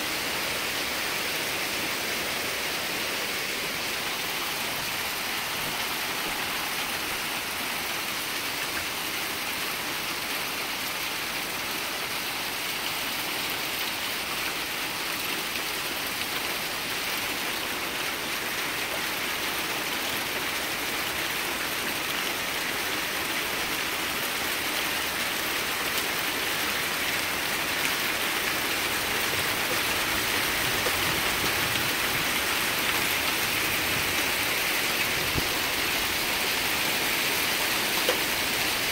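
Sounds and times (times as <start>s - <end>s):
hail falling on concrete: 15.7s - 38.9s.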